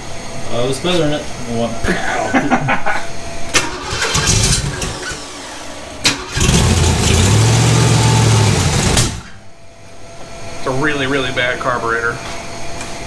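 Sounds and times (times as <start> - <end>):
car engine running loudly: 3.6 - 9.4.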